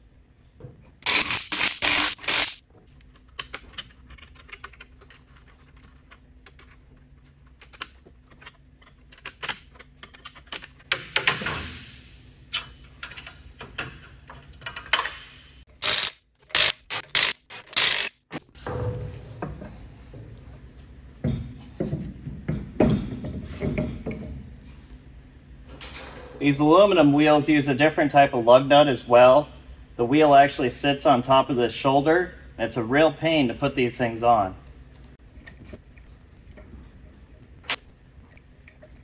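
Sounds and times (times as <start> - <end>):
impact wrench bursts: 1.0 - 2.6, 15.7 - 18.4
clinks of tools and lug nuts: 12.5 - 15.4, 36.4 - 39.0.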